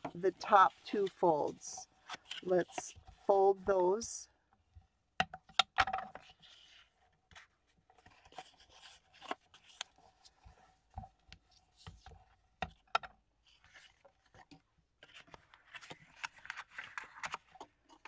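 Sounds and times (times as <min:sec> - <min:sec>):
card rustling and crinkling: 0:00.0 - 0:03.6, 0:06.0 - 0:18.0.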